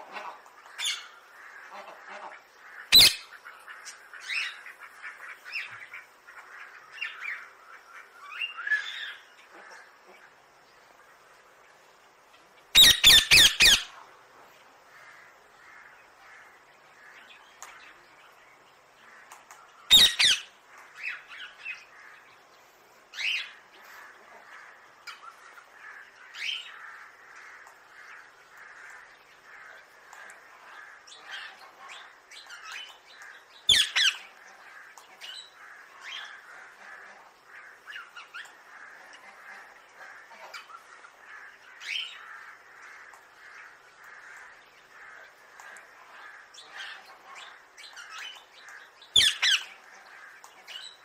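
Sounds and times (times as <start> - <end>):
background bird chatter: 0.0 - 51.0
parakeets screeching: 2.9 - 3.3, 12.8 - 13.9, 19.9 - 21.2, 33.7 - 34.3, 49.2 - 49.8.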